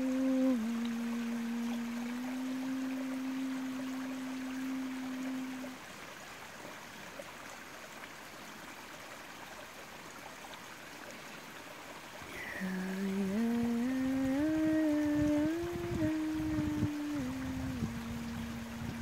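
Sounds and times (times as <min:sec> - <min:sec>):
person humming: 0:00.0 - 0:05.8, 0:12.3 - 0:19.0
stream trickling: 0:00.0 - 0:19.0.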